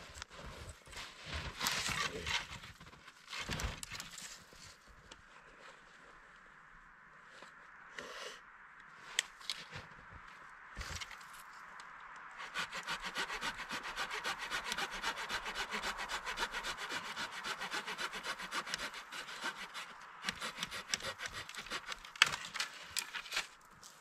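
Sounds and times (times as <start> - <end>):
hand saw cutting branch: 12.4 - 23.5.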